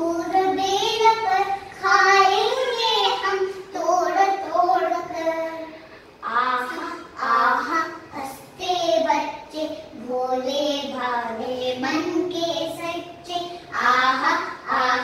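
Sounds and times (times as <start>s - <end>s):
children singing: 13.8s - 15.0s.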